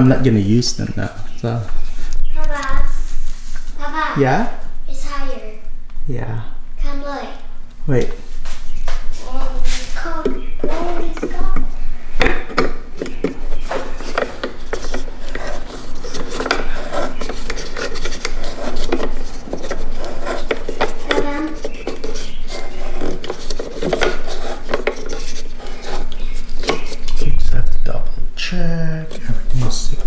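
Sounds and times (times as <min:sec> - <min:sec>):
metal scraping on bracket: 0:13.0 - 0:27.4.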